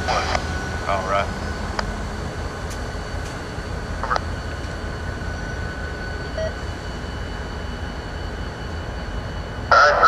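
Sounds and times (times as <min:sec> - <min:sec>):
diesel locomotive idling: 0:00.0 - 0:10.0.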